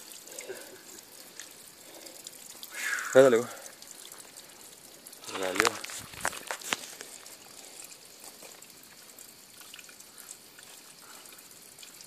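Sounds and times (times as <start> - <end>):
water trickling: 0.0 - 12.0.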